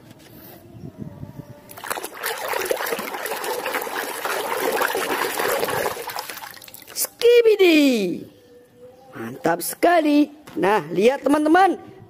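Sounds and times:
hands splashing water in basin: 0:01.7 - 0:07.0.

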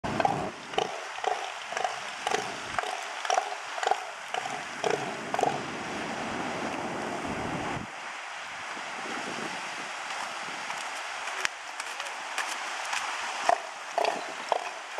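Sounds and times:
elephant seal pulsed call: 0:00.1 - 0:05.7.

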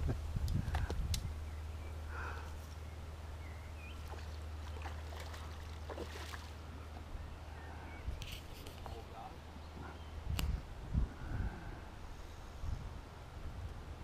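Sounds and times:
wind rumble on microphone: 0:00.0 - 0:01.9, 0:09.8 - 0:14.0
fish splashing in water: 0:04.0 - 0:06.7.

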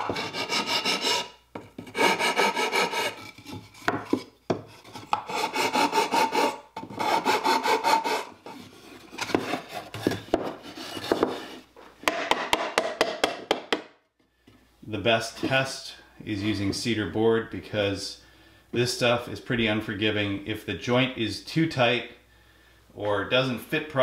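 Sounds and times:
metal file rasping on wood: 0:00.0 - 0:04.2, 0:04.8 - 0:11.6.

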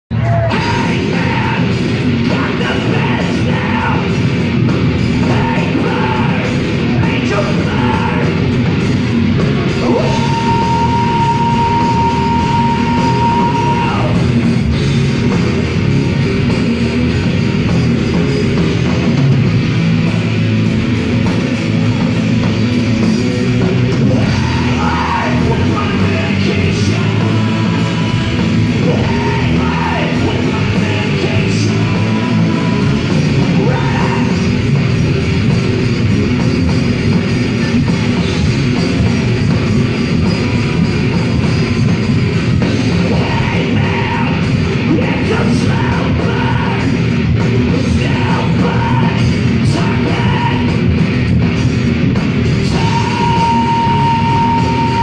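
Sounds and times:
person singing: 0:00.1 - 0:04.2, 0:05.2 - 0:08.4, 0:09.8 - 0:14.2, 0:24.0 - 0:34.6, 0:43.1 - 0:47.1, 0:47.7 - 0:50.8, 0:52.6 - 0:55.0
live rock band playing: 0:00.1 - 0:55.0.

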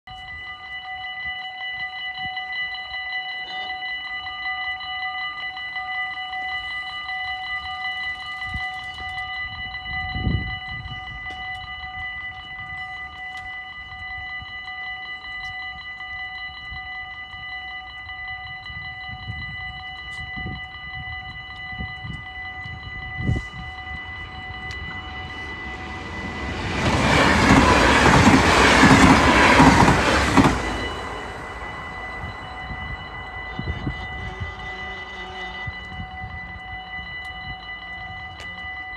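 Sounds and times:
level crossing bell ringing: 0:09.2 - 0:38.9
train rushing past: 0:23.2 - 0:35.5.

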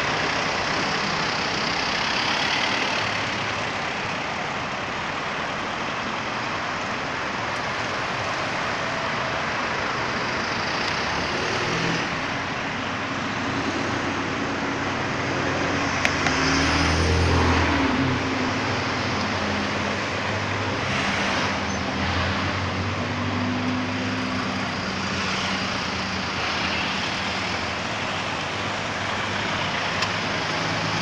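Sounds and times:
road traffic: 0:00.0 - 0:31.0
vehicle engine passing close: 0:13.4 - 0:28.4.

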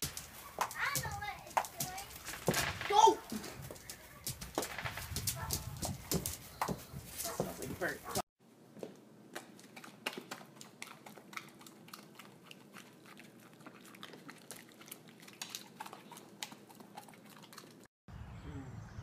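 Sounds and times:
dog chewing wet mouth clicks: 0:09.4 - 0:17.9.

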